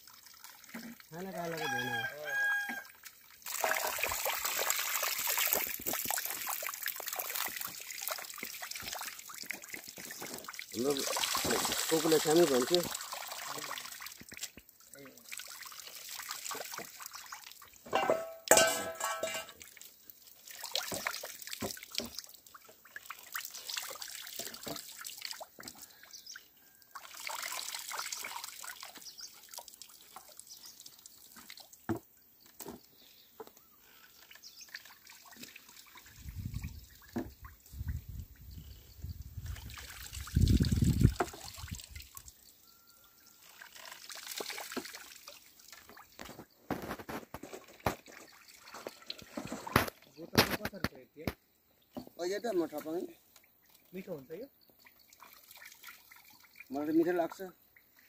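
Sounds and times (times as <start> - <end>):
oil trickling and dripping: 0.0 - 58.0.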